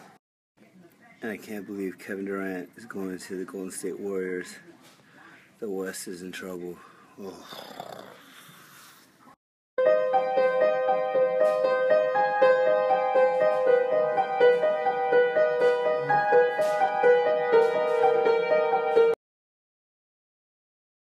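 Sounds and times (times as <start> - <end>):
piano notes and chords: 9.8 - 19.2.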